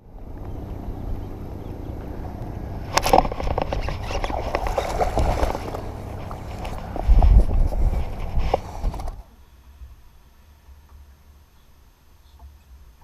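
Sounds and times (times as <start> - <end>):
wind rumbling on microphone: 0.0 - 9.3.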